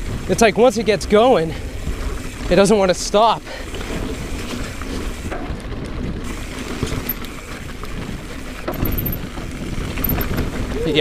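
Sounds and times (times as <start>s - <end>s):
mountain bike rumble and rattle: 0.0s - 11.0s
wind buffeting microphone: 3.8s - 11.0s.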